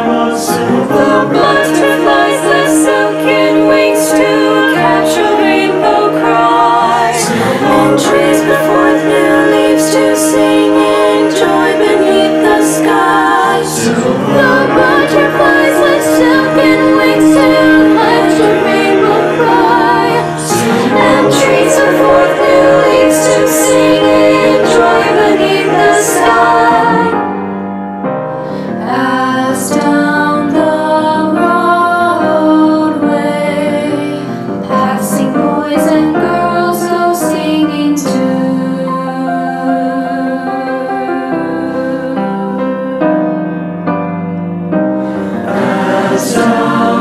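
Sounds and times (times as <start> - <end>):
choir singing: 0.0 - 27.8, 28.5 - 43.8, 44.8 - 47.0.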